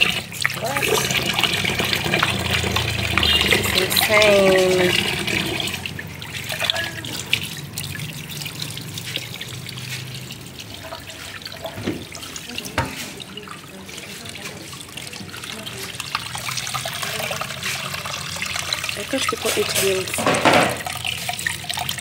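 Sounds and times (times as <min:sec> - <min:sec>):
hands rubbing and rinsing fish: 0:00.0 - 0:20.2
tap water splashing in a sink: 0:00.0 - 0:22.0.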